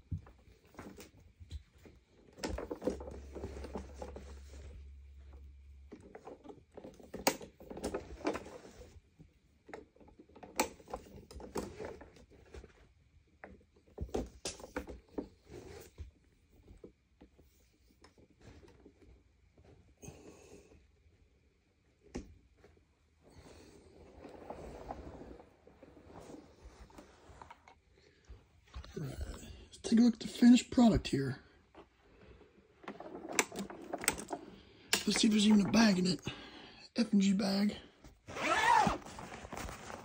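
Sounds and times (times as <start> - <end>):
faint low hum: 0.0 - 10.1
hands handling vacuum cleaner: 0.0 - 19.1, 23.3 - 36.4, 38.0 - 40.0.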